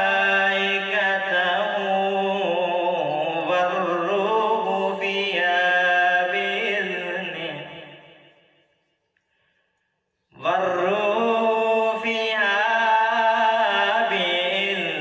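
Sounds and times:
man reciting melodically: 0:00.0 - 0:08.0, 0:10.3 - 0:15.0.

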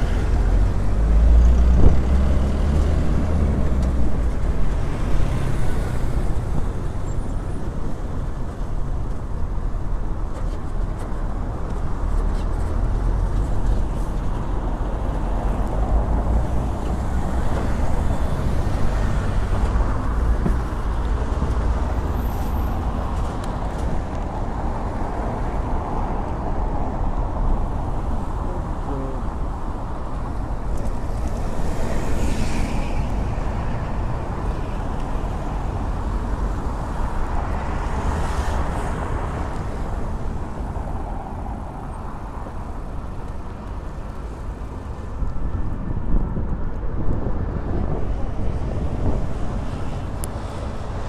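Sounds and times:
traffic on cobbled street: 0:00.0 - 0:51.0
wind rumble on microphone: 0:00.0 - 0:51.0.

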